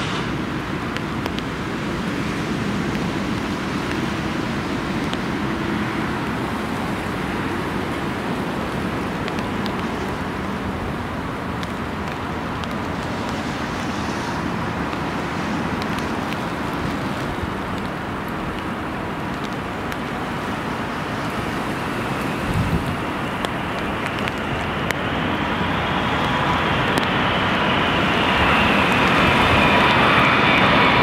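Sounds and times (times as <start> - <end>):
rain: 0.0 - 31.0
storm wind: 0.0 - 31.0.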